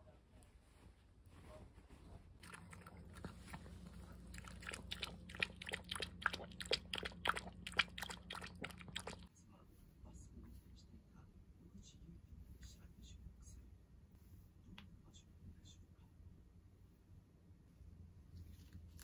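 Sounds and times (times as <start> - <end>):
dog lapping milk: 2.4 - 9.3.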